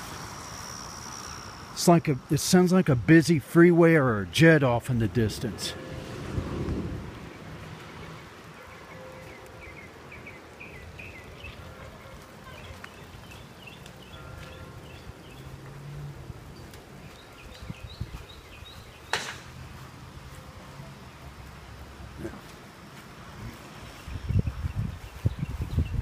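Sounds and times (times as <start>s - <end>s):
storm wind rumble: 5.0s - 8.6s.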